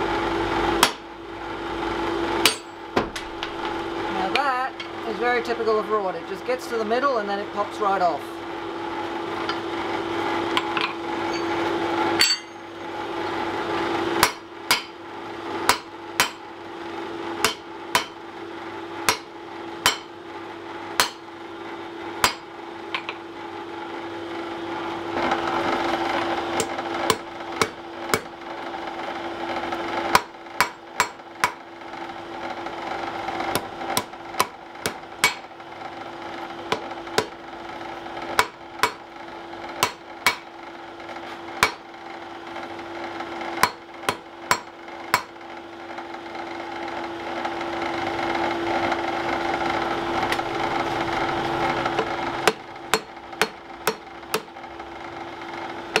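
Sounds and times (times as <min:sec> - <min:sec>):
steady hum: 0:00.0 - 0:13.6, 0:30.1 - 0:40.8
hammer striking iron on anvil: 0:00.8 - 0:01.1, 0:02.4 - 0:03.5, 0:10.6 - 0:12.9, 0:14.2 - 0:15.0, 0:15.7 - 0:16.4, 0:17.4 - 0:18.2, 0:19.1 - 0:20.1, 0:21.0 - 0:21.3, 0:22.2 - 0:23.2, 0:26.6 - 0:28.3, 0:30.1 - 0:31.6, 0:33.5 - 0:35.5, 0:36.7 - 0:37.4, 0:38.4 - 0:39.1, 0:39.8 - 0:40.5, 0:41.6 - 0:41.9, 0:43.6 - 0:45.4, 0:52.4 - 0:54.5.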